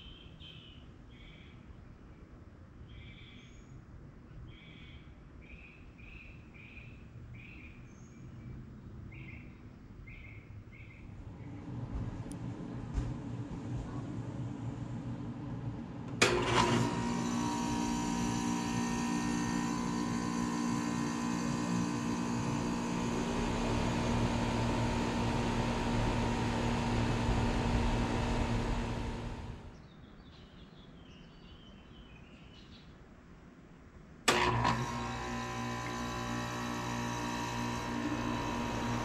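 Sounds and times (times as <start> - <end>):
air conditioner humming: 11.0 - 29.8, 34.3 - 39.0.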